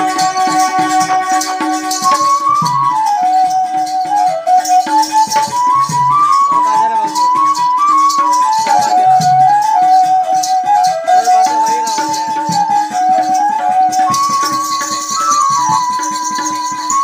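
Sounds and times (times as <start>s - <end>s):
hand drum strokes: 0.0s - 17.0s
jingling rattling percussion: 0.0s - 17.0s
wind instrument melody: 0.0s - 17.0s.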